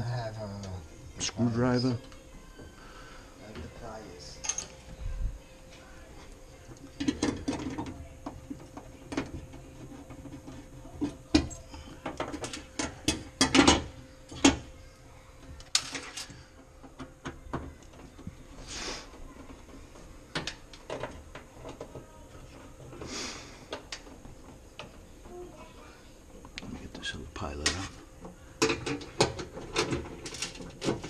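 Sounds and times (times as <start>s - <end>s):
metal tools clicking and scraping: 4.4s - 4.8s.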